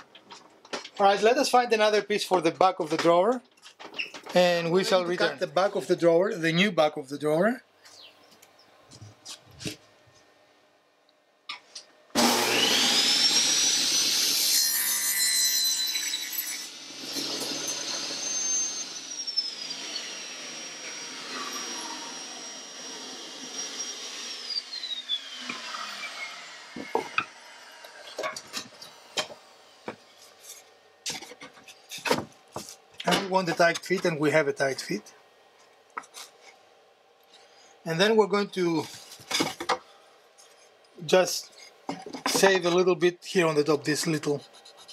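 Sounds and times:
saw cutting wooden board: 12.1 - 34.3, 41.3 - 42.9
band saw whining: 12.2 - 35.1.

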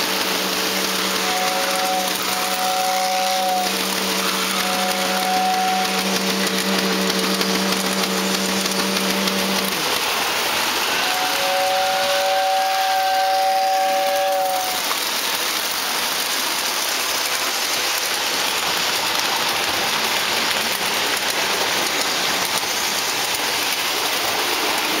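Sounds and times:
model train whistle: 0.0 - 15.1
steady rushing hiss: 0.0 - 25.0.

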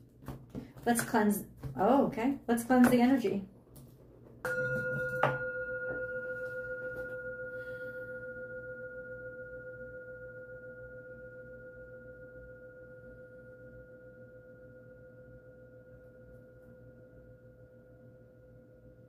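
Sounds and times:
singing bowl ringing: 4.4 - 19.0.

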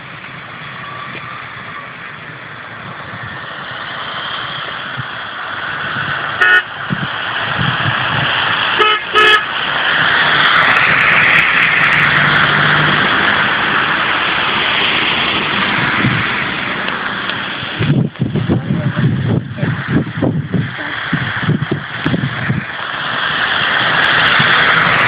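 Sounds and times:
trucks passing on wet road: 0.0 - 25.0
vehicle horn toots: 6.4 - 6.7, 8.8 - 9.5.

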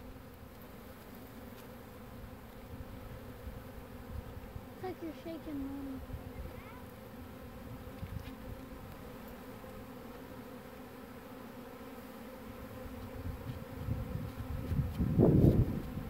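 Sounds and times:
bees buzzing: 0.0 - 16.0.

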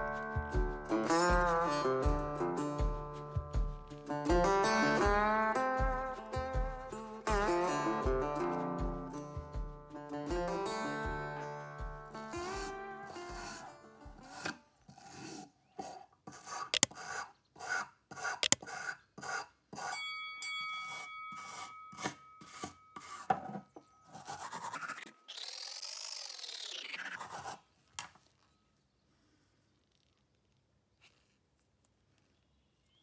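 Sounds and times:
wire brush scrubbing steel: 12.2 - 23.4, 24.1 - 27.7
short ringing tone: 20.0 - 23.3.

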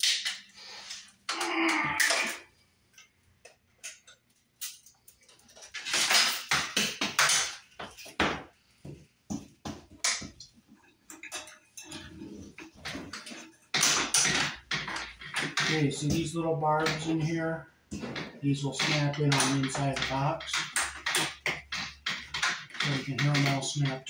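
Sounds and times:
metal conduit clinking and rattling: 10.0 - 24.0.

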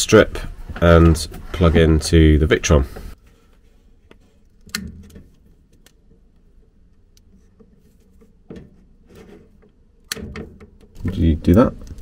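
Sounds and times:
wire stripper clicks and rustle: 3.3 - 12.0.

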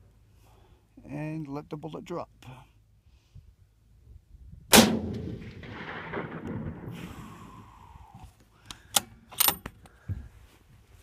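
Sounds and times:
rifle shot with rolling echo: 4.7 - 7.4.

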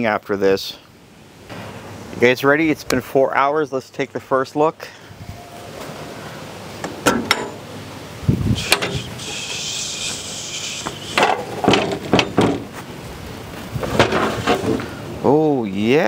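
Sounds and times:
steady hiss: 0.0 - 16.0
heavy metal door thumping open: 6.8 - 7.7, 8.7 - 9.0, 11.2 - 12.8
knocks and creaks: 6.8 - 7.7, 10.9 - 12.9, 13.8 - 14.9
latch clicking: 6.8 - 7.7, 8.7 - 9.0.

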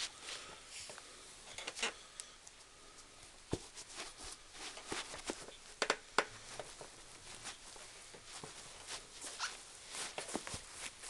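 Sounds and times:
shoe taps and scuffs: 3.5 - 5.5.

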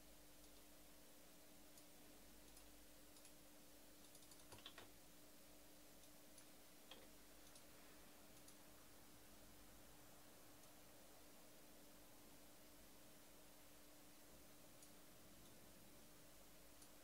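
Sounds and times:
faint steady hum: 0.0 - 17.0
faint clicks: 0.4 - 0.7, 1.7 - 3.4, 4.0 - 4.9, 6.0 - 7.7, 8.3 - 8.6, 10.6 - 10.8, 16.7 - 17.0.

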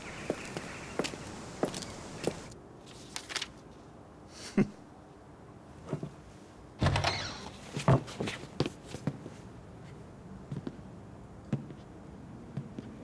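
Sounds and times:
footsteps on wooden floor: 0.0 - 2.6
falling creak: 6.8 - 7.7.

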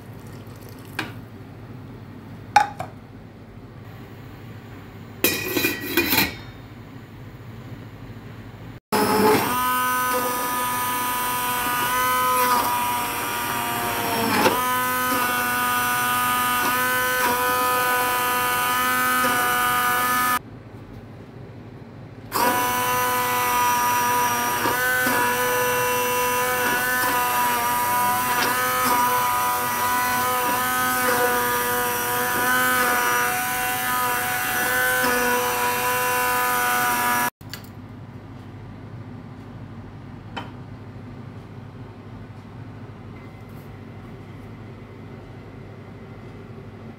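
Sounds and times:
immersion blender whining: 8.9 - 20.4, 22.3 - 37.4.

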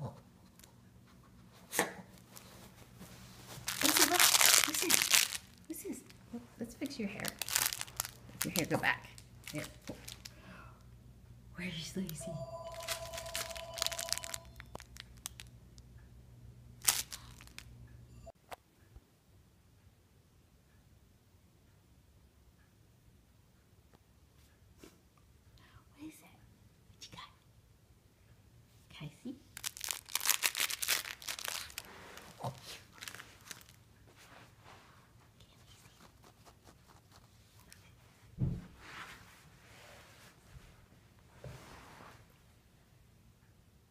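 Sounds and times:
crinkly material crackling: 2.1 - 10.3, 12.7 - 15.5, 16.8 - 17.7, 29.5 - 37.9
steady high tone: 12.2 - 14.8.

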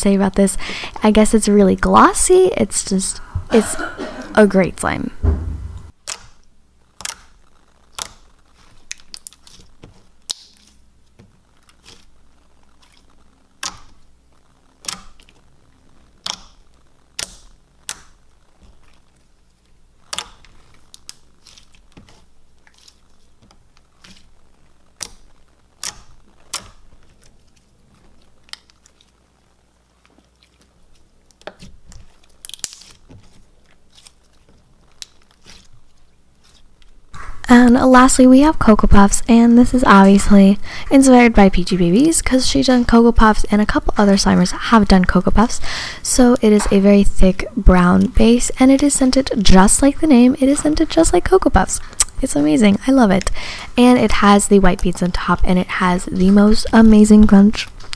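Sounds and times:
slime squished by hand: 7.0 - 14.1, 29.9 - 37.0.

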